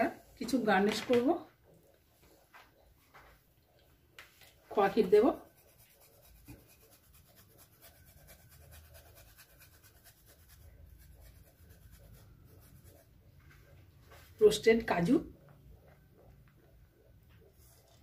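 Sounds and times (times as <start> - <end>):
grating on metal grater: 5.4 - 13.0.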